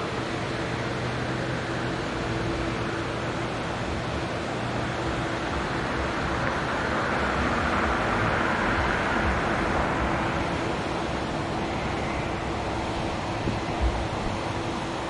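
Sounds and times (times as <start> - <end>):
train wheels rolling on rails: 0.0 - 15.0.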